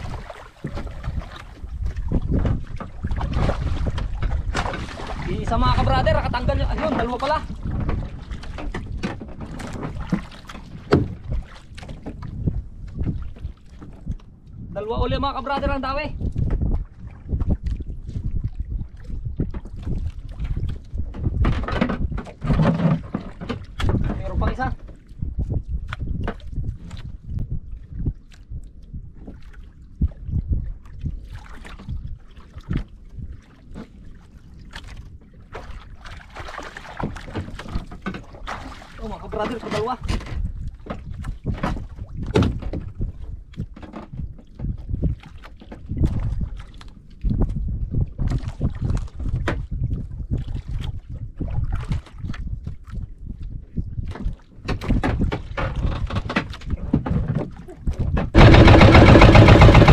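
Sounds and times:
water sloshing against boat hull: 0:00.0 - 0:59.9
wind rumble on microphone: 0:00.0 - 0:59.9
knocks on wooden boat: 0:00.1 - 0:01.2, 0:05.8 - 0:12.3, 0:21.1 - 0:24.7, 0:39.3 - 0:43.0, 0:54.1 - 0:59.9.

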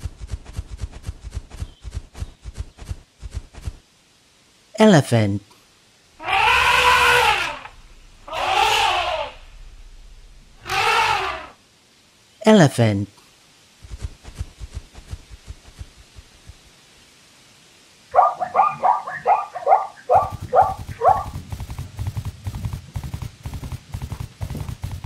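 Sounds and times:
hoofbeats galloping: 0:00.0 - 0:03.8, 0:13.8 - 0:16.7, 0:20.1 - 0:25.0
soft slow footfalls: 0:00.0 - 0:03.8, 0:13.8 - 0:16.7
zebra barking call: 0:06.2 - 0:11.6, 0:18.1 - 0:21.3.

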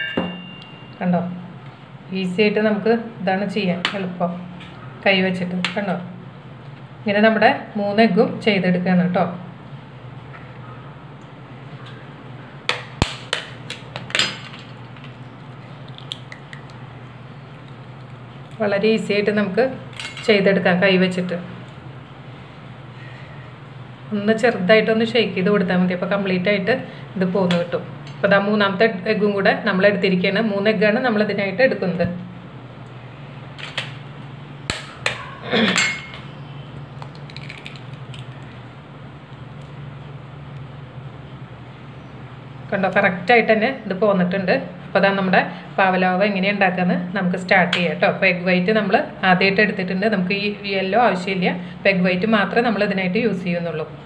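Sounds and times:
steady low hum: 0:00.0 - 0:54.0
eggshell cracking: 0:15.0 - 0:16.8, 0:37.0 - 0:38.6.

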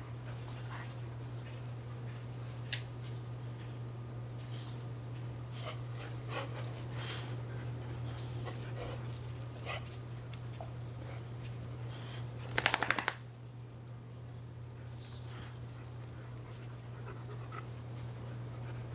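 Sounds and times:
steady low hum: 0:00.0 - 0:18.9
dogs panting: 0:04.6 - 0:13.0, 0:14.8 - 0:18.9.

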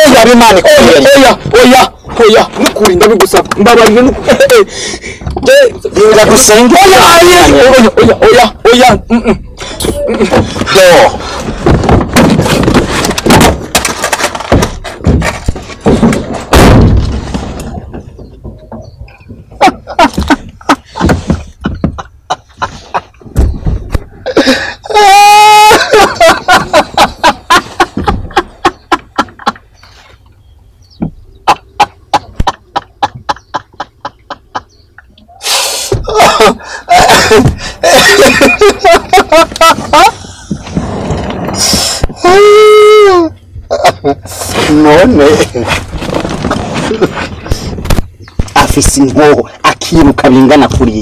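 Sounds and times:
thumps and bangs on car body: 0:11.5 - 0:18.8, 0:23.2 - 0:24.1.

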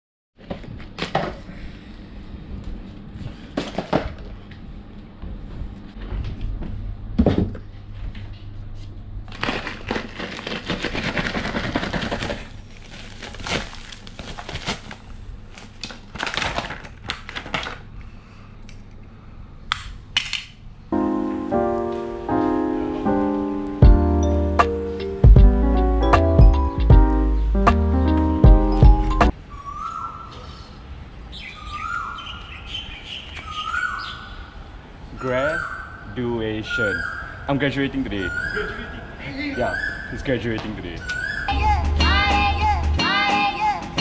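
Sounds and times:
plastic packaging crinkling: 0:09.3 - 0:18.0.

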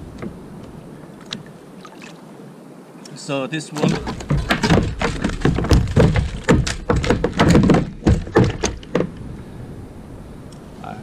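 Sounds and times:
thumps and knocks on plastic kayak: 0:03.8 - 0:09.2.

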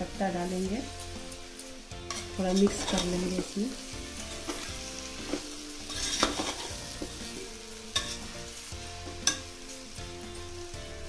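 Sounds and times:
masala sizzling: 0:00.0 - 0:11.0
spatula scraping and knocking pot: 0:02.0 - 0:03.5, 0:04.3 - 0:07.4, 0:08.0 - 0:08.3.

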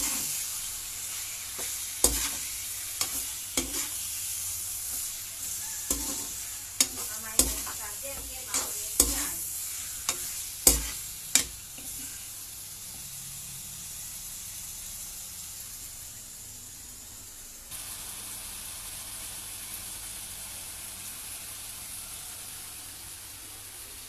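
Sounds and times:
pork sizzling in oil: 0:00.0 - 0:24.0
spatula knocking against pan: 0:10.1 - 0:11.5.

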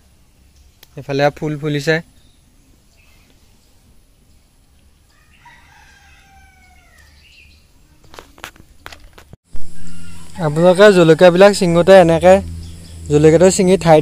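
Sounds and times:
light clicks of picking pods: 0:00.6 - 0:01.0
faint rooster crowing: 0:05.1 - 0:07.4, 0:09.6 - 0:11.7.

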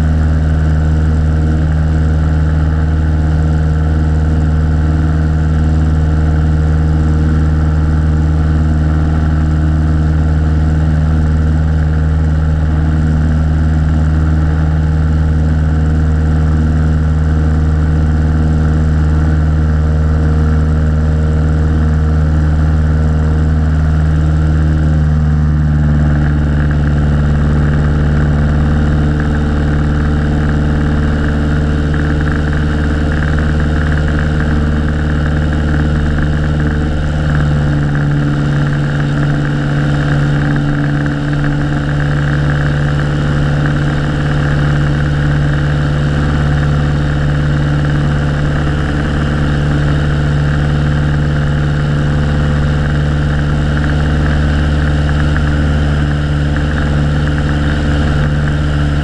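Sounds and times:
propeller plane engine droning: 0:00.0 - 0:59.0.

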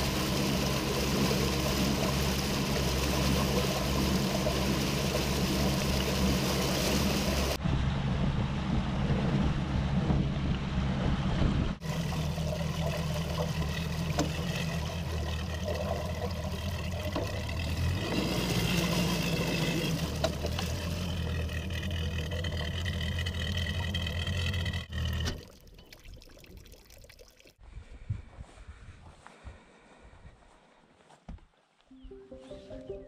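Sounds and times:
outboard motor running: 0:00.0 - 0:07.6, 0:09.0 - 0:25.6.

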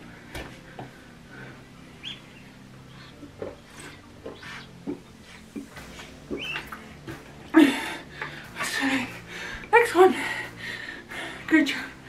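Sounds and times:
bottle chirps: 0:06.3 - 0:06.8.

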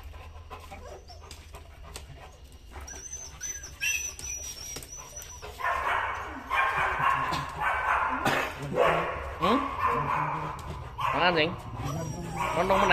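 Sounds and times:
dog whimpering: 0:00.7 - 0:01.4, 0:02.8 - 0:07.5, 0:11.2 - 0:12.9.

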